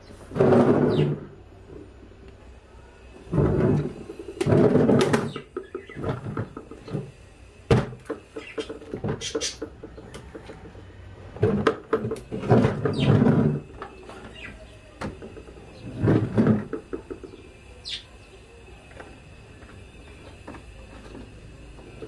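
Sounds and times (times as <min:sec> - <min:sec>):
plastic parts knocking and clattering: 0:03.3 - 0:07.1, 0:07.7 - 0:14.4, 0:15.0 - 0:17.4.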